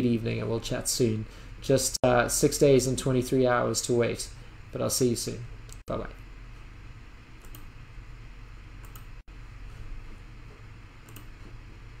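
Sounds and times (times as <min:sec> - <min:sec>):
steady low hum: 0:00.0 - 0:12.0
computer clicks: 0:07.4 - 0:07.7, 0:08.8 - 0:09.2, 0:11.0 - 0:11.4.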